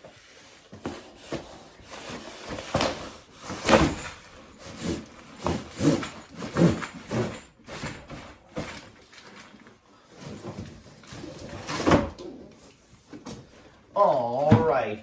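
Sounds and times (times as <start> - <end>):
panels scraping in cardboard box: 0.4 - 8.8.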